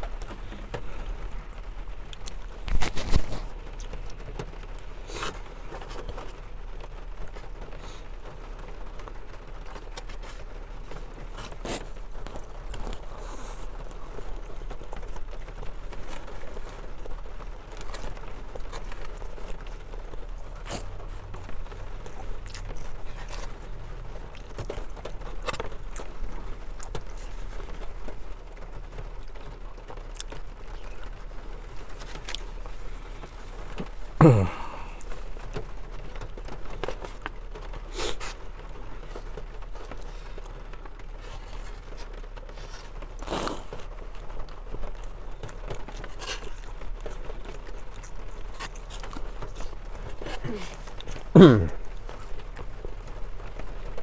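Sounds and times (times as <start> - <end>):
chewing: 0.0 - 54.0.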